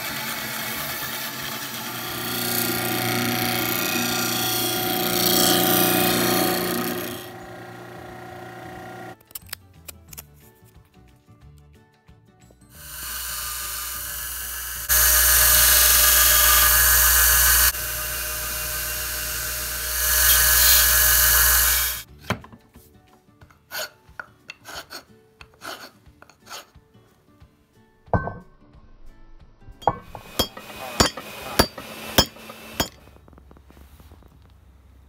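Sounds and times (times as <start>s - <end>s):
hand rasp scraping wood: 0.0s - 7.4s, 23.7s - 26.8s, 30.2s - 32.9s
belt sander on wood: 0.0s - 9.2s, 12.9s - 22.1s, 30.1s - 33.0s.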